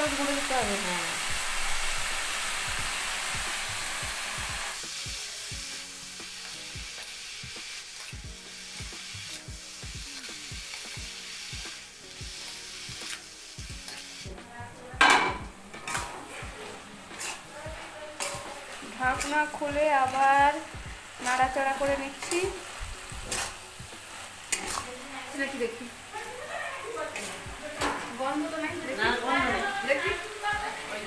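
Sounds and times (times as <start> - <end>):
vegetables sizzling in oil: 0.0 - 31.0
spatula scraping a pan: 7.8 - 14.3, 15.7 - 20.3, 23.2 - 25.4, 27.1 - 29.2.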